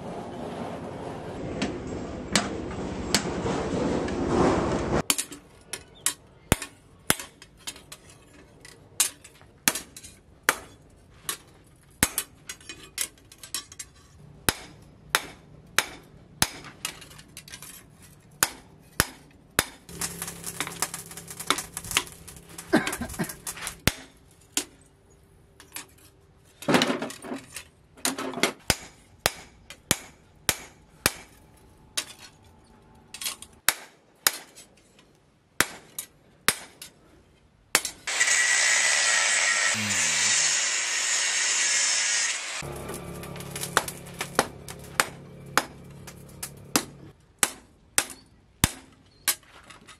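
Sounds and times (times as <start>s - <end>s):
rough noise: 38.1s - 47.1s.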